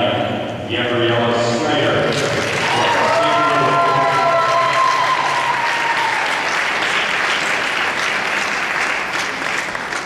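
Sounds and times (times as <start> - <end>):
audience applauding: 2.1 - 10.0
high held cheer: 2.4 - 9.6.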